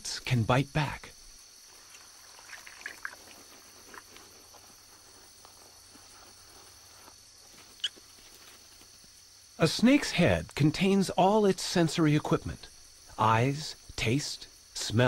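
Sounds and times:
crickets chirping: 0.0 - 15.0
rustling in vegetation: 1.4 - 9.6.

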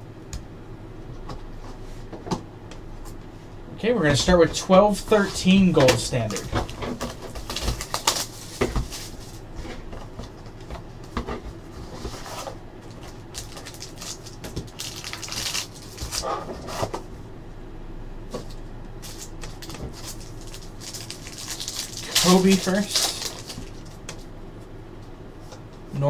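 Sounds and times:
cardboard scraping and rustling: 4.1 - 13.8.

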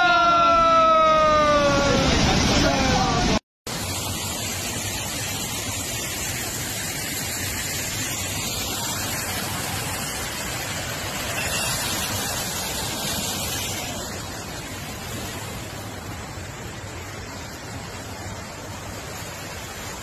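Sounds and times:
floodwater rushing: 0.0 - 20.0.

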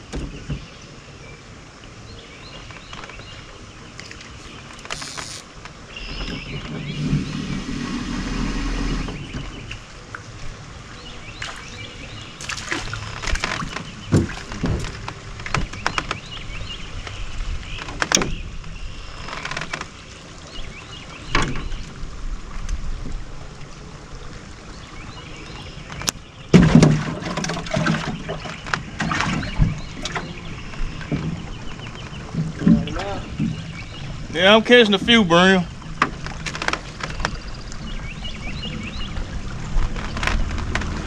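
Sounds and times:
clicks and knocks against boat: 0.0 - 0.8, 2.6 - 7.3, 12.4 - 20.3, 21.3 - 23.2, 25.8 - 34.1, 35.9 - 38.0, 38.6 - 41.0.

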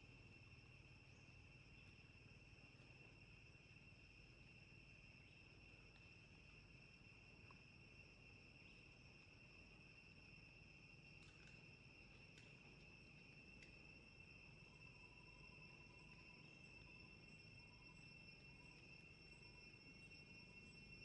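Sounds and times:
insects droning: 0.0 - 21.0
faint clicks: 11.1 - 13.8.

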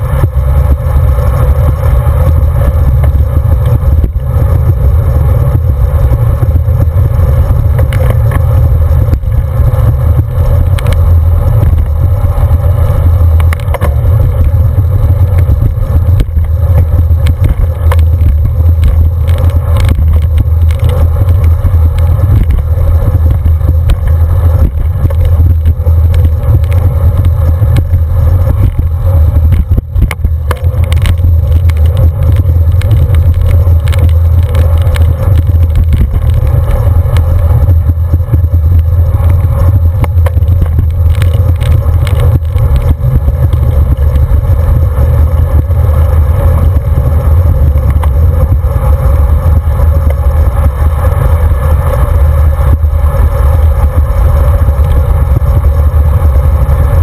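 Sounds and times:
clicks and rattles from road: 0.0 - 57.0
tyre and road rumble: 0.0 - 57.0
wind buffeting microphone: 0.0 - 57.0.

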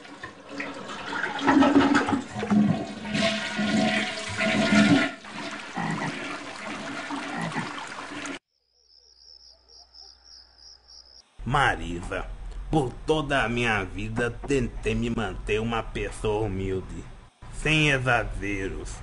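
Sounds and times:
toilet flushing: 0.0 - 8.4
faint insect chirping: 8.5 - 11.4.

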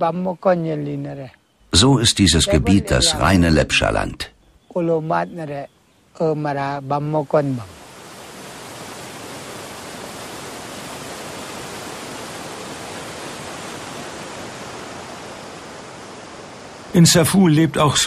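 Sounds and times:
stream rushing over rocks: 7.7 - 17.0.

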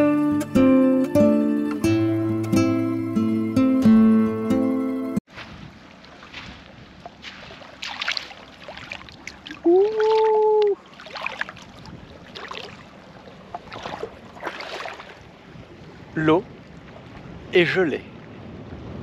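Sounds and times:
feet splashing in water: 5.3 - 17.4
person crying out: 9.6 - 10.8.

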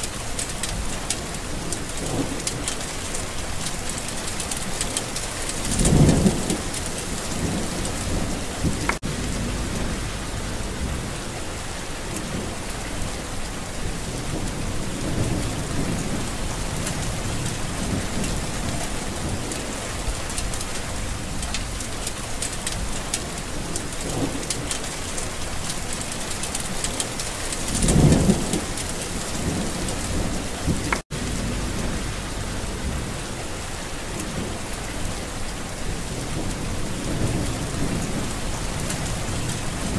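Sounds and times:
steady rain falling: 0.0 - 39.9
low roll of thunder: 5.5 - 21.9, 27.6 - 33.4, 35.8 - 39.9.

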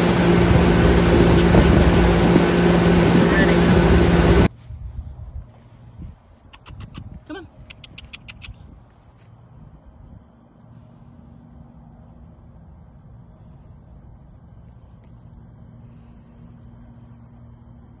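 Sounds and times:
insects chirring: 5.2 - 18.0.

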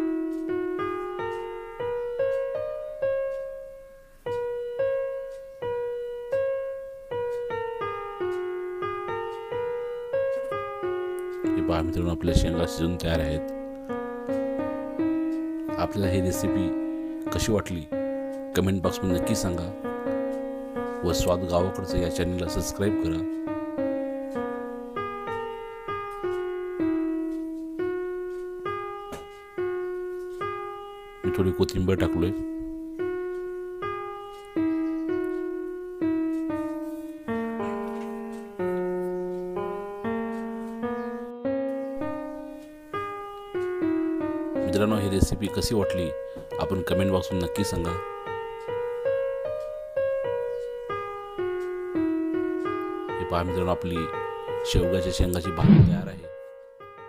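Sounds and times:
slow piano melody: 0.0 - 57.0.

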